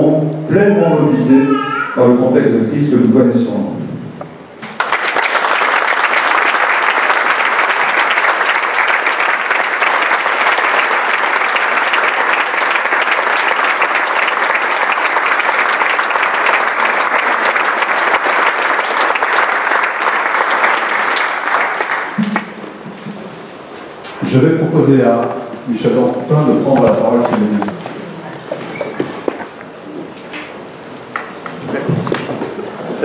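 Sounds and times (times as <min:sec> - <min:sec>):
people applauding: 0:04.6 - 0:23.0.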